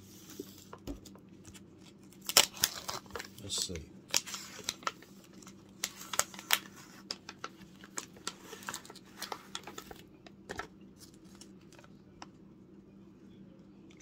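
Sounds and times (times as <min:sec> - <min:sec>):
plastic package crinkling: 0:01.8 - 0:11.9.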